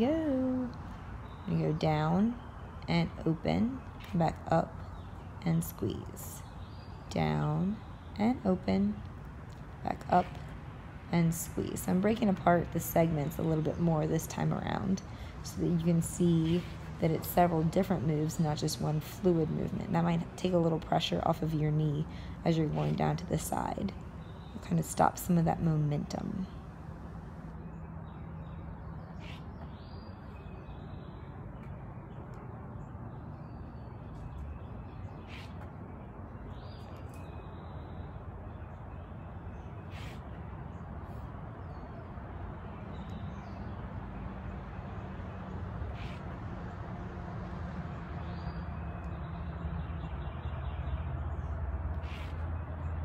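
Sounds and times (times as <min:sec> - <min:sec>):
steady low hum and hiss: 0:00.0 - 0:27.6
bird calls: 0:29.0 - 0:31.2, 0:39.6 - 0:40.4, 0:45.9 - 0:46.3.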